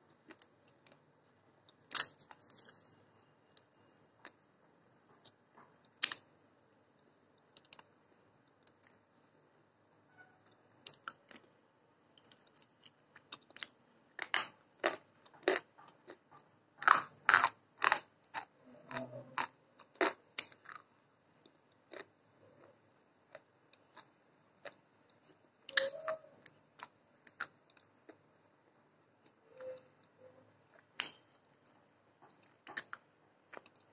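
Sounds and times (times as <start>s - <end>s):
chewing crunches and clicks: 0.1s - 1.0s, 7.5s - 7.9s, 10.8s - 11.5s, 12.2s - 28.2s, 30.0s - 33.9s.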